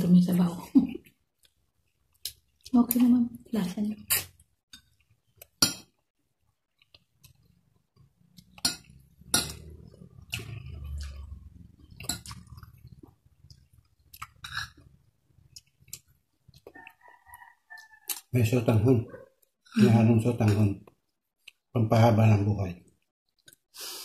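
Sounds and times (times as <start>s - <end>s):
chewing: 6.4s - 18.3s.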